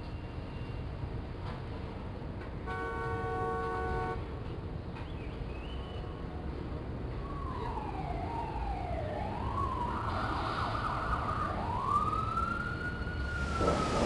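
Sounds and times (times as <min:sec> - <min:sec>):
city traffic rumble: 0:00.0 - 0:14.0
emergency siren wailing: 0:07.0 - 0:14.0.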